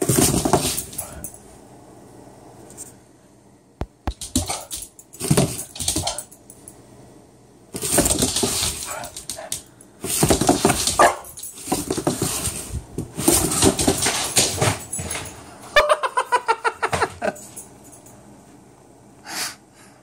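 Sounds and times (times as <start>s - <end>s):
dog barking: 11.0s - 11.3s.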